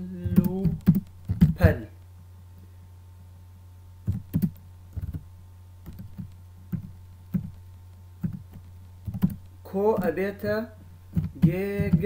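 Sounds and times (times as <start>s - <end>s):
steady low hum: 0.0s - 12.0s
keyboard keys clicking: 0.3s - 1.6s, 4.1s - 5.2s, 5.8s - 7.6s, 8.2s - 9.5s.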